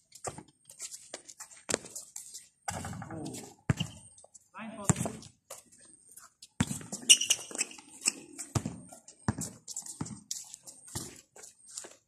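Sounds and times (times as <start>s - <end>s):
basketball bouncing on concrete: 0.2s - 0.5s, 1.7s - 2.0s, 2.6s - 4.2s, 4.8s - 5.4s, 6.6s - 7.8s, 8.4s - 11.2s.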